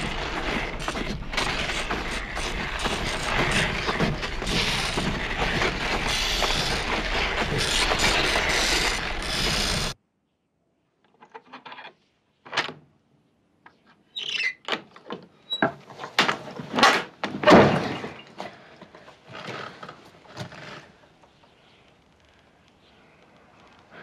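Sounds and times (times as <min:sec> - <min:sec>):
wooden door squeaking: 0:00.0 - 0:10.0, 0:14.1 - 0:15.8.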